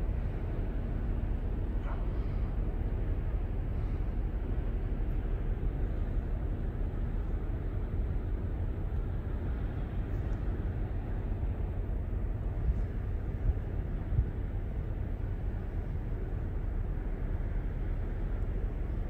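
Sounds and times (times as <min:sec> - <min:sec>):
low outdoor rumble: 0:00.0 - 0:19.0.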